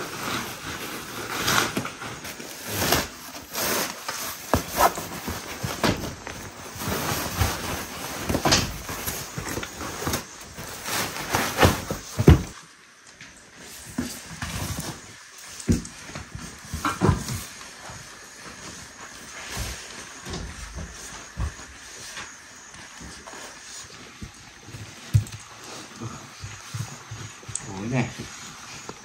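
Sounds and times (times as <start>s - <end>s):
fabric blanket cover rustling: 0.0s - 12.6s
knocks and thumps: 11.4s - 12.6s.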